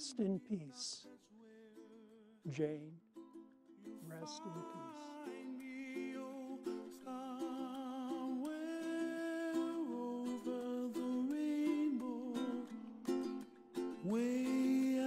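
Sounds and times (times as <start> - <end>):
strummed string accompaniment: 0.0 - 15.0
person humming a slow melody: 4.2 - 5.6.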